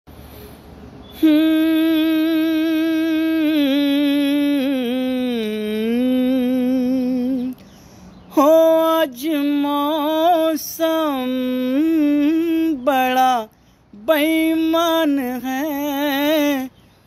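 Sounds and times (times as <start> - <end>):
man humming a long note: 1.2 - 7.5.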